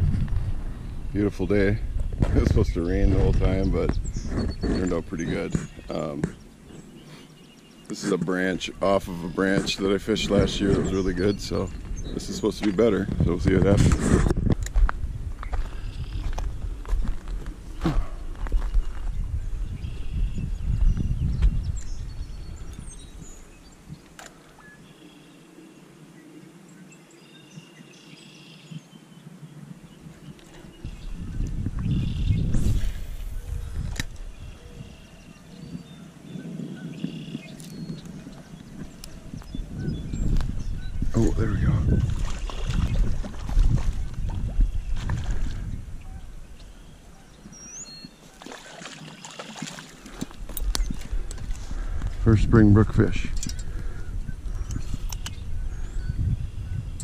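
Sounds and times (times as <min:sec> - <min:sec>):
low microphone rumble: 0:00.0 - 0:07.0, 0:29.6 - 0:46.9, 0:50.5 - 0:57.0
birds chirping: 0:00.0 - 0:57.0
water splashing and sloshing: 0:41.9 - 0:45.7, 0:48.1 - 0:51.6
click: 0:54.6 - 0:55.4.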